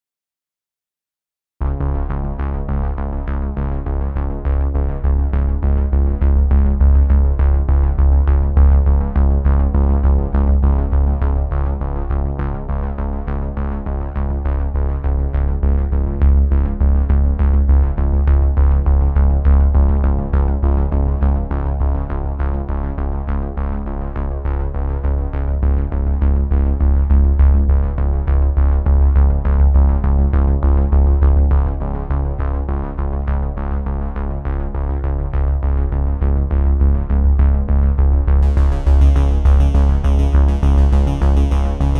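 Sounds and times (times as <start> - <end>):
synthesizer music with heavy bass: 38.3 - 41.9.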